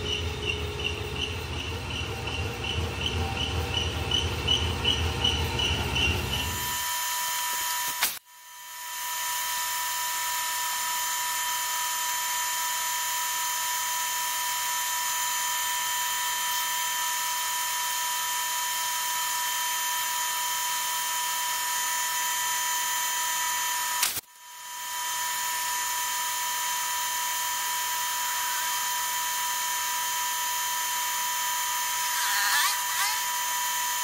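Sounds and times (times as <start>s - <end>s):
boring machine whine: 0.0s - 34.0s
click: 24.0s - 24.3s.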